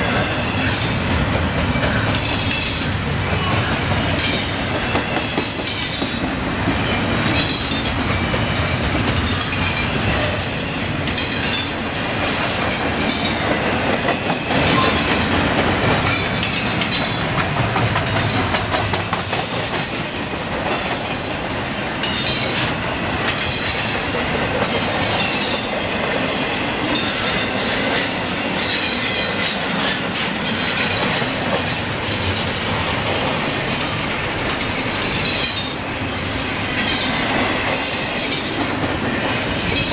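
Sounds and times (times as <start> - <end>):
freight train wheels rumbling on rails: 0.0 - 39.9.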